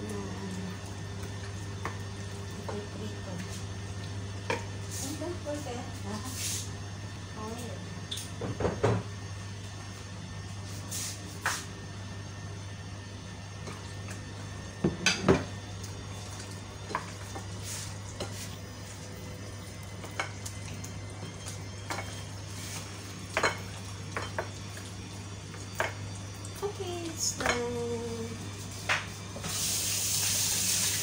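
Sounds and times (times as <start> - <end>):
steady low hum: 0.0 - 30.4
knocks on kitchen counter: 8.4 - 9.1, 14.8 - 15.5.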